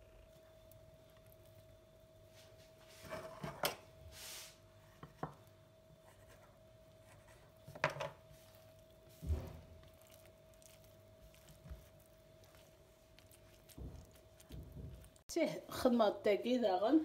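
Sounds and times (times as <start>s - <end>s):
faint steady hum: 0.0s - 17.0s
dough rubbing hiss: 4.1s - 4.8s.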